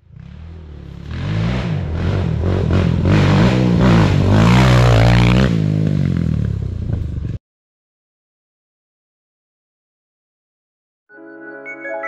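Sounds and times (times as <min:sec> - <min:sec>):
quad engine revving: 0:00.0 - 0:07.4.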